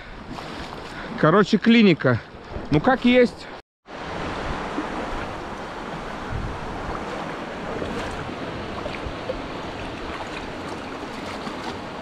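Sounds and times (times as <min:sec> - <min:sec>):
sea surf washing ashore: 0:03.9 - 0:12.0.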